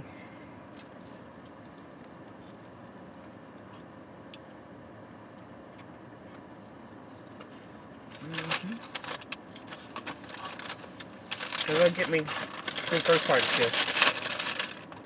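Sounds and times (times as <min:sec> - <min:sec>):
car interior hum: 0:00.0 - 0:15.0
faint chewing: 0:00.2 - 0:04.6.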